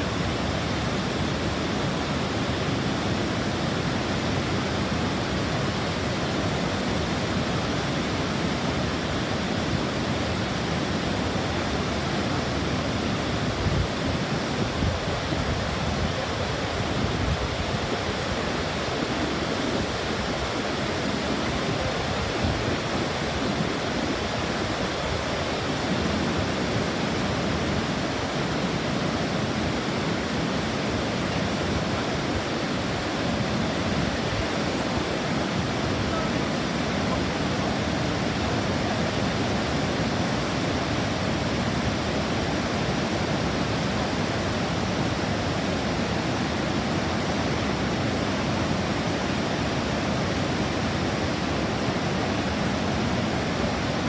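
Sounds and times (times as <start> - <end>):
waterfall rushing over rocks: 0.0 - 54.0.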